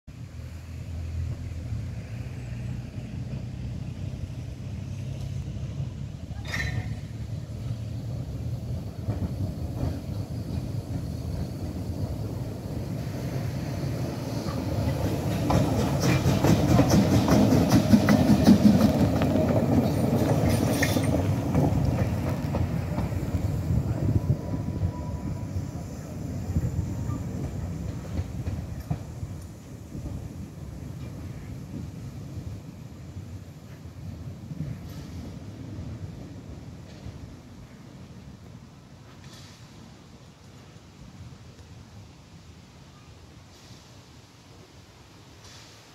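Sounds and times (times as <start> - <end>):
wheels clicking over rail joints: 6.2 - 24.9, 26.6 - 37.6
locomotive running gear clanking: 14.4 - 23.8.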